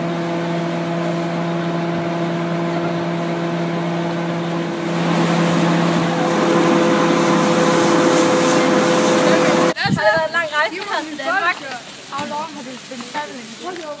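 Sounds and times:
diesel train engine humming: 0.0 - 9.8.

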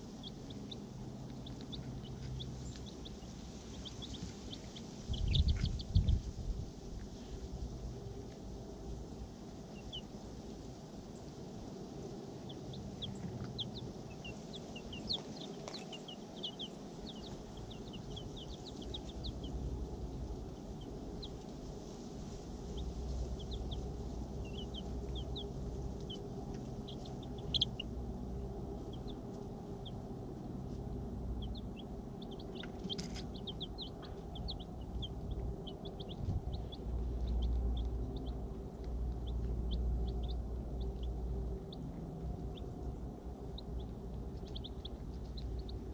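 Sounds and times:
chicks peeping: 0.0 - 8.5, 9.2 - 45.9
low rumble: 0.0 - 10.2, 11.1 - 21.8, 22.5 - 45.9.

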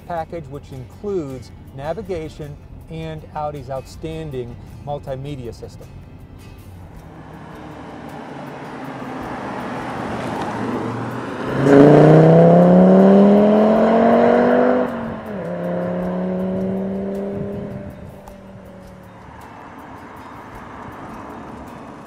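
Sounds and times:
gear change: 6.0 - 22.0
car engine accelerating hard: 6.9 - 22.0.

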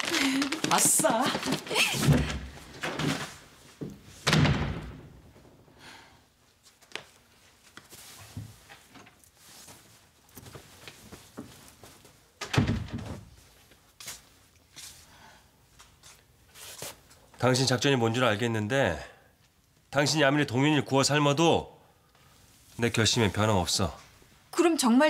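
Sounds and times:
door shutting with a thud: 4.2 - 5.1, 12.5 - 13.3.

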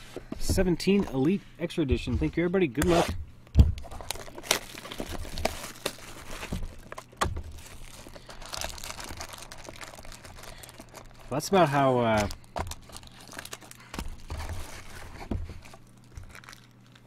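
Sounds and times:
plastic wrapping crinkling: 3.8 - 17.0.

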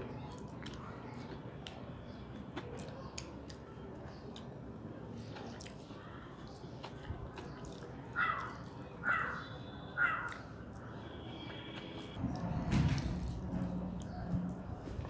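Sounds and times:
close-up chewing: 0.0 - 15.0
fingers squishing rice on plate: 5.2 - 12.1.

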